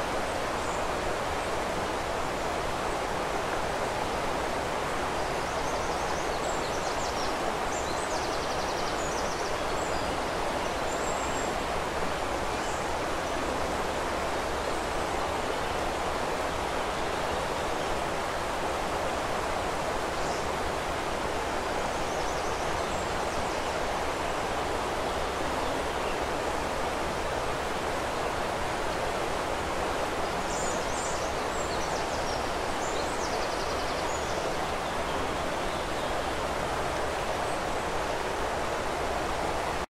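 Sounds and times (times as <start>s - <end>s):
river flowing: 0.0s - 39.9s
songbird chirps: 27.6s - 39.9s.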